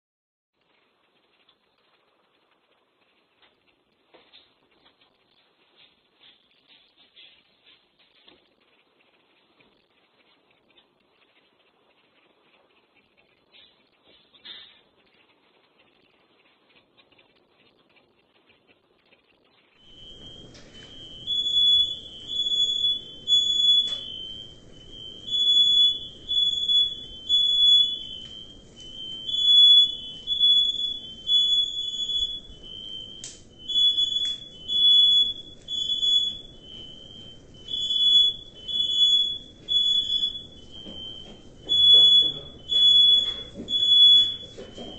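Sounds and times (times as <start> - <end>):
smoke alarm beeping: 19.8 - 44.9.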